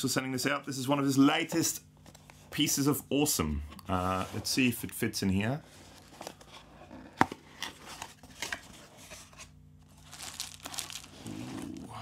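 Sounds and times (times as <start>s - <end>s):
packing crinkling rustle: 9.8s - 11.8s.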